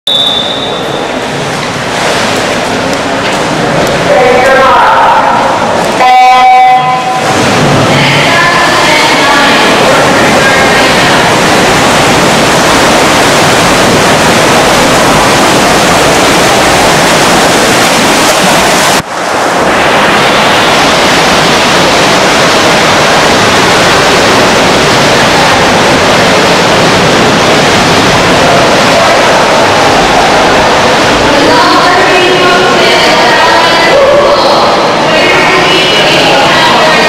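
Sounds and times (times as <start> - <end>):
swimmers splashing: 0.4 - 37.0.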